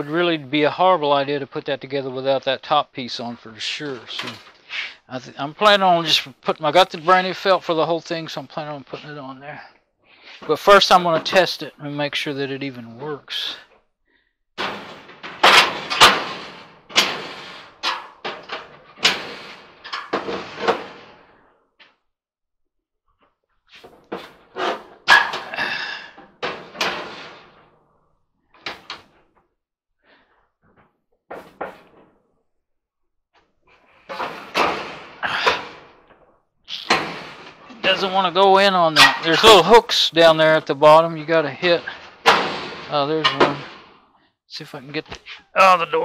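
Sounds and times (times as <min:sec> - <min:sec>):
sheet metal banging and rattling: 0:14.6 - 0:21.4, 0:23.8 - 0:27.7, 0:31.3 - 0:32.1, 0:34.1 - 0:44.0.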